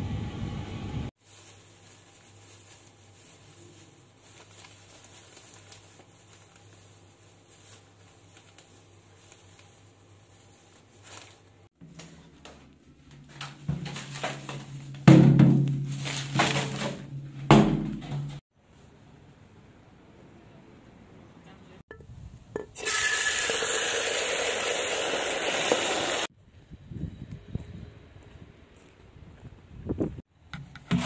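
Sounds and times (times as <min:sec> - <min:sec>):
plastic bag crinkling: 0:01.2 - 0:11.6.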